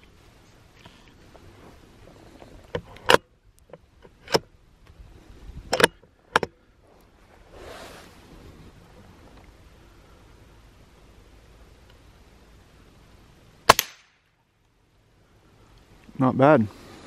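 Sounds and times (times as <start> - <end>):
soft rustle: 0.0 - 3.0, 4.8 - 13.4
muffled rifle shot: 13.7 - 14.2.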